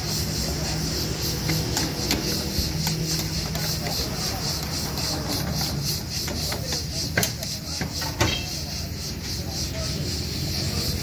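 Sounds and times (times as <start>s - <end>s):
sharp metal clanks: 1.2s - 8.9s.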